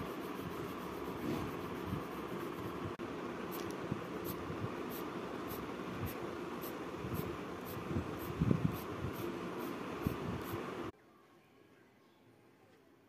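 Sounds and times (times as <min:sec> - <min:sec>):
pencil shading on paper: 0:00.0 - 0:02.8
fan-like hiss: 0:00.0 - 0:10.9.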